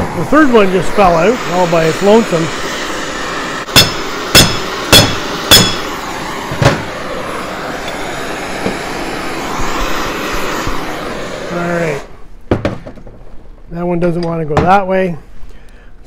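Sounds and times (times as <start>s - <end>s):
gas torch flame hissing: 0.0s - 12.2s.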